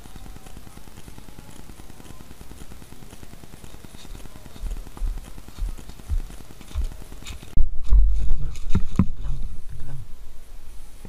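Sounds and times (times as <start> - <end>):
footsteps on grass: 3.9 - 9.1.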